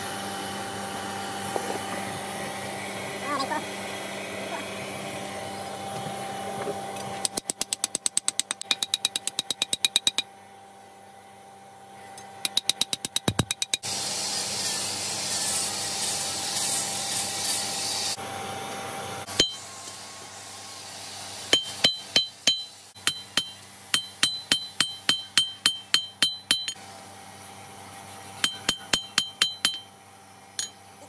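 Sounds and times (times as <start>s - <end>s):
hammer striking steel on anvil: 7.2s - 10.3s, 19.3s - 19.6s, 21.5s - 26.8s, 28.4s - 29.9s, 30.6s - 30.8s.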